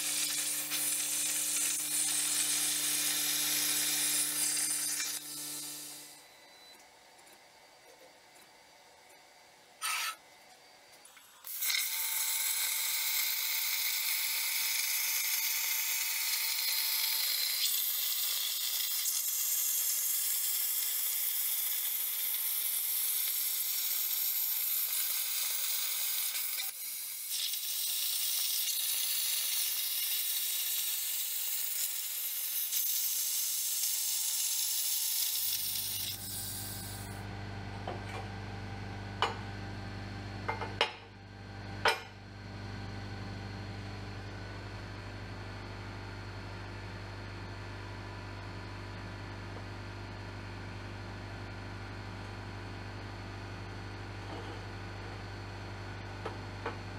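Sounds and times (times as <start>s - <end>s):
plasma cutter hissing: 0.0s - 6.1s, 17.2s - 37.2s.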